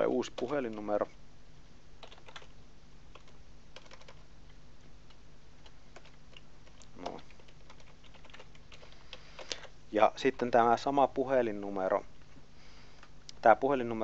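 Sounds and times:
keyboard typing: 0.3s - 0.9s, 2.0s - 9.7s.

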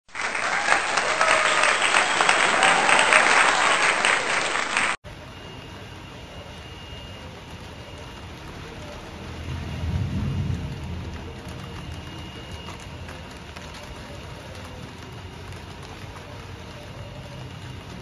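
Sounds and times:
applause: 0.1s - 5.0s, 10.8s - 18.0s
crowd voices: 0.1s - 18.0s
rain hissing: 0.1s - 18.0s
low rumble of thunder: 7.5s - 15.6s.

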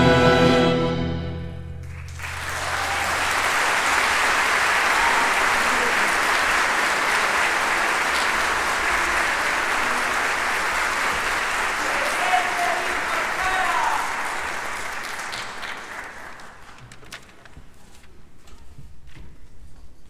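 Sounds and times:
orchestra final chord: 0.0s - 2.0s
audience applauding: 1.8s - 17.3s.

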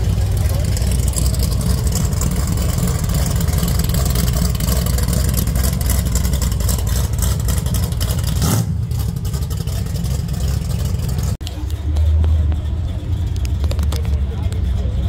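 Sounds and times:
car engine rumbling: 0.0s - 15.0s.

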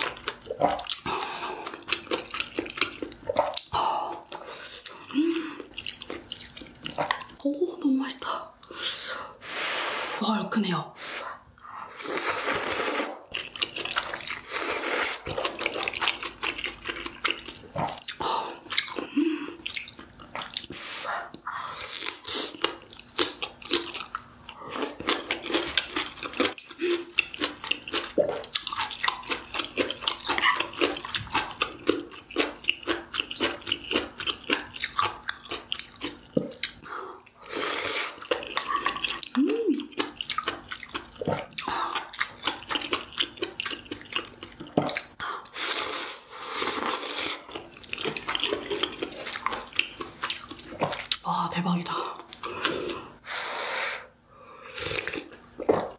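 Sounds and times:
wet chewing and mouth clicks: 0.0s - 7.6s, 13.2s - 51.3s, 52.1s - 53.2s, 54.7s - 55.9s
noodle slurping: 11.9s - 19.2s.

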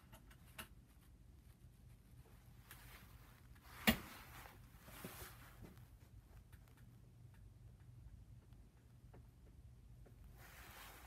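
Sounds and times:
clothing rustling: 0.9s - 6.0s, 10.3s - 11.0s.

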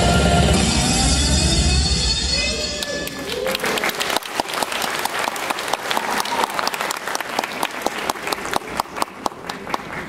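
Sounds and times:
many hands clapping: 2.8s - 10.0s.

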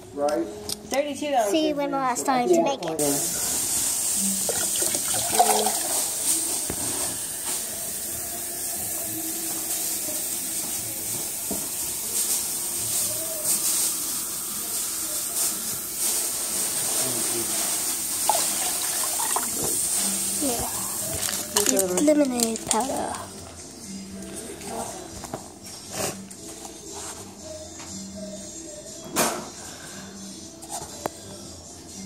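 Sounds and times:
water pouring into glass pitcher: 4.4s - 6.3s, 18.2s - 19.8s.

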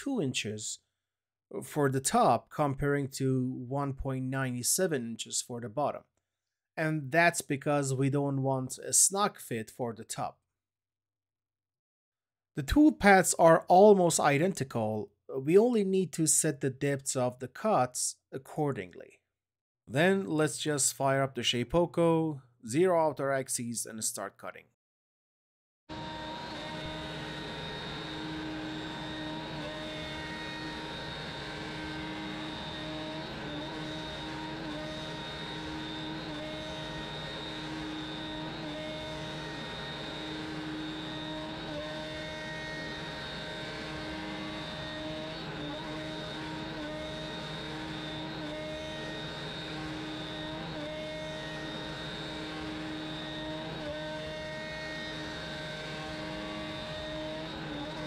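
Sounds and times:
router spindle whine: 25.9s - 58.0s.

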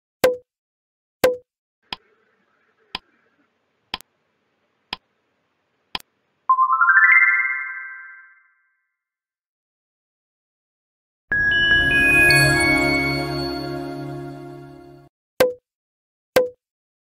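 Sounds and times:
countdown timer ticks: 0.2s - 0.4s, 1.2s - 1.4s
pop sound effect: 0.2s - 0.4s, 1.2s - 2.0s, 16.4s - 16.6s
rising synthesized chime jingle: 11.3s - 15.1s.

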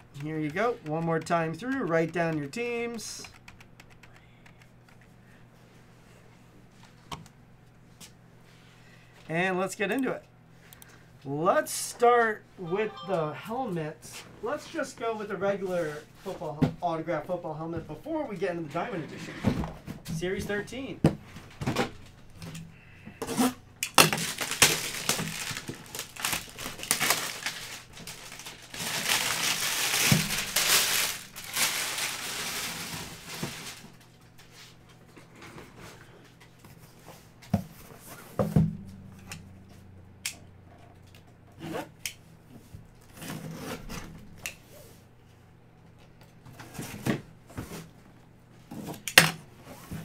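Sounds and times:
packaging rustling and tearing: 23.9s - 34.1s.

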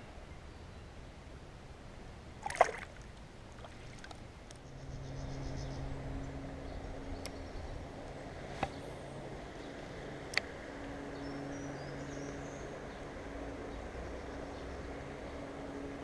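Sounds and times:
low hum: 0.0s - 16.0s
faint water noise: 1.4s - 4.8s
fish splashing into water: 2.4s - 4.2s.

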